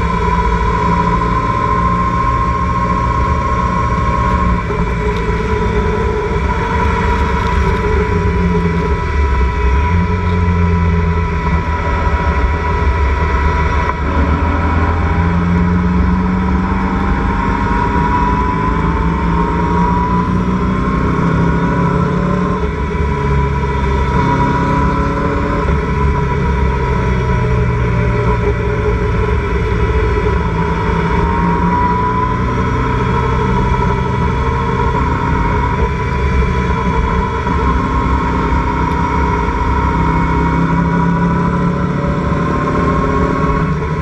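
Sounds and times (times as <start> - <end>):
race car engine running hard: 0.0 - 44.0
wet road noise: 2.2 - 15.3.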